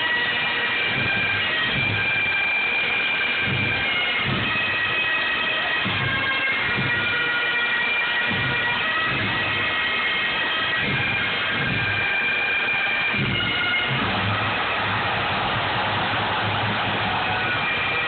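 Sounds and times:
bagpipes playing a tune: 0.0 - 15.1, 16.4 - 18.0
bass drum beating: 13.1 - 17.5.

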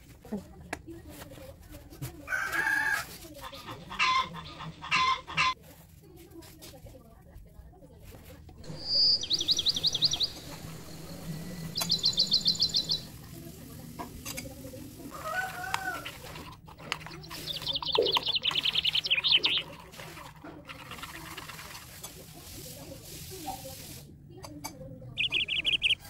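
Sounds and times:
songbird trilling: 8.7 - 13.2, 17.3 - 19.7, 25.2 - 26.0.

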